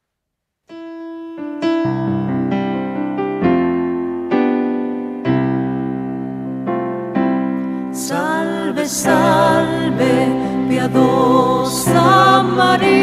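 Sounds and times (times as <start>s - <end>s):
slow piano chords: 0.7s - 13.0s.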